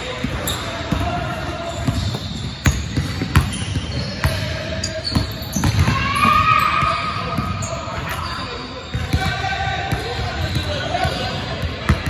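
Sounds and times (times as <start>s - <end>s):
basketball bouncing on hardwood floor: 1.8s - 3.6s.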